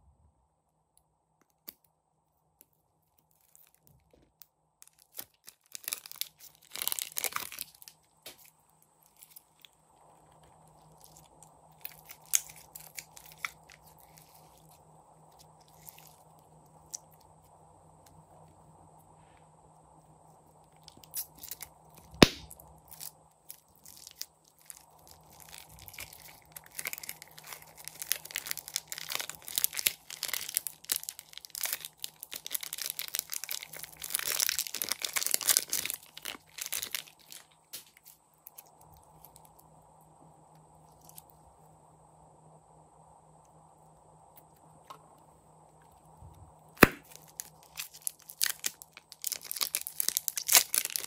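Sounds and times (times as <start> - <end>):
slime crackling and popping: 3.2 - 9.7, 10.3 - 14.8, 20.8 - 38.6, 46.8 - 51.0.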